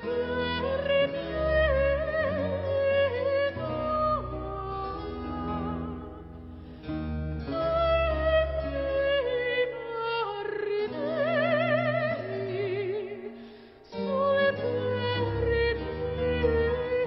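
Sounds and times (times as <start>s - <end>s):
sustained musical accompaniment: 0.0s - 17.0s.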